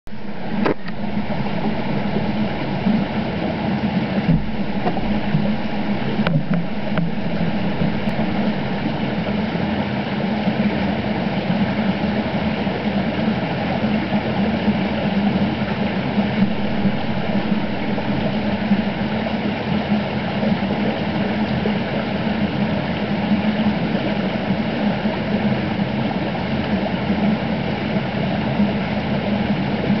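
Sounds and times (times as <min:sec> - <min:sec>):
underwater creek rushing rumble: 0:00.1 - 0:30.0.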